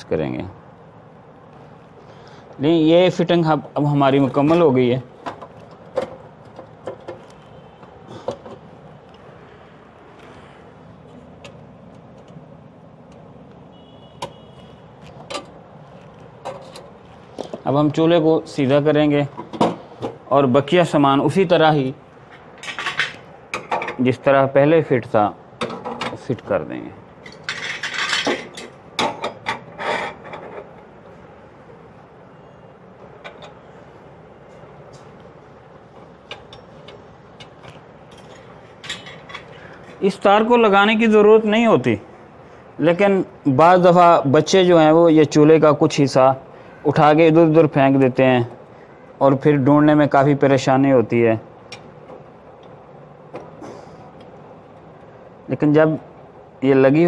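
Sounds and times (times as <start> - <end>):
metal parts clinking: 27.2 - 30.6, 36.3 - 39.6.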